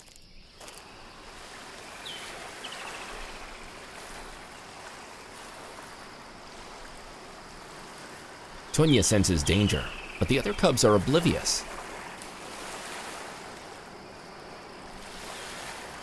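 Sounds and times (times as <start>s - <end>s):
river water rushing: 0.8s - 16.0s
high bird chirps: 8.7s - 11.1s.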